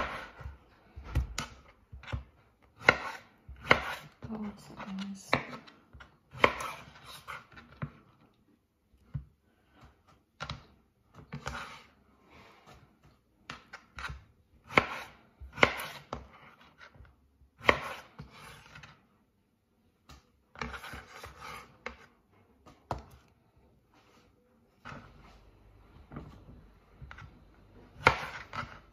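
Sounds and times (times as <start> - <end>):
knife cutting fruit: 0.0 - 8.2, 9.0 - 12.0, 12.6 - 19.0, 27.0 - 28.9.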